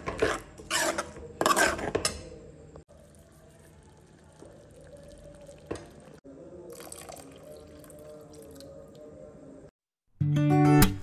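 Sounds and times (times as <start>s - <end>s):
curry bubbling: 2.8s - 9.2s.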